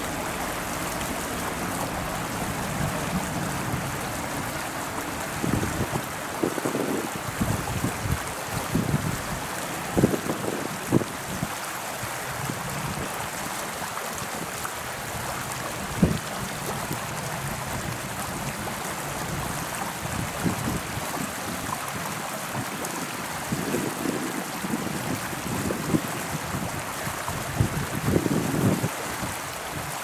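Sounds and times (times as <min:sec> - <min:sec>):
wind gusts buffeting microphone: 0:00.0 - 0:13.4, 0:15.2 - 0:30.0
wind hiss: 0:00.0 - 0:30.0.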